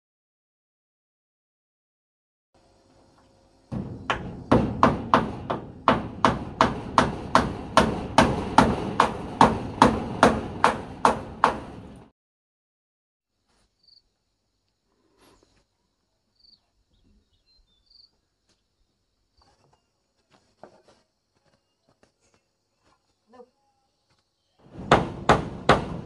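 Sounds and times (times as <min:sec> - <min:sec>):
hammer blows on wood: 0:03.7 - 0:12.1, 0:24.7 - 0:26.0.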